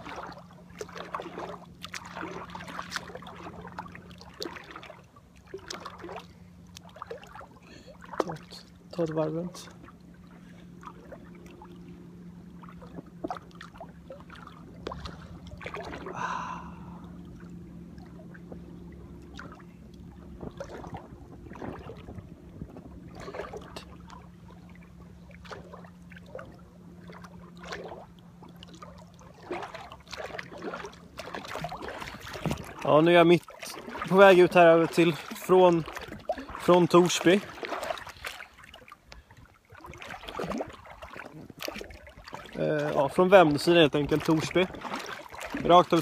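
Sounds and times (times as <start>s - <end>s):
steady low hum: 0.0s - 36.8s
small waves slapping a dinghy: 0.0s - 46.0s.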